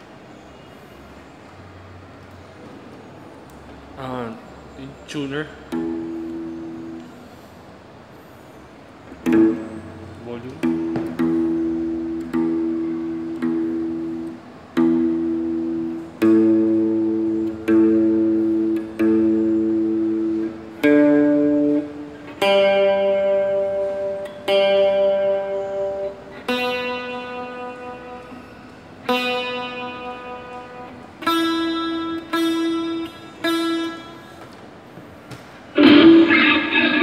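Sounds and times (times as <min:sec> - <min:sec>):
clean electric guitar chords: 0:09.2 - 0:34.4, 0:35.7 - 0:37.0
distorted guitar tone: 0:09.2 - 0:34.4, 0:35.7 - 0:37.0.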